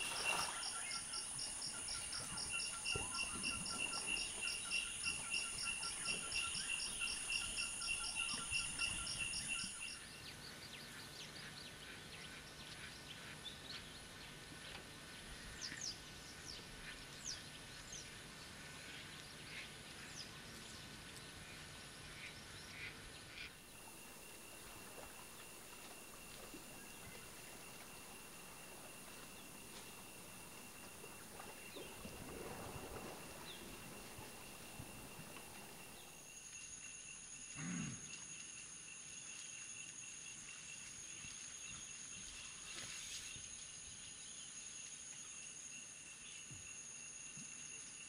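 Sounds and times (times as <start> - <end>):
insect chorus trilling: 0.0 - 10.0, 23.5 - 48.0
faint high insect drone: 0.0 - 11.0, 13.5 - 48.0.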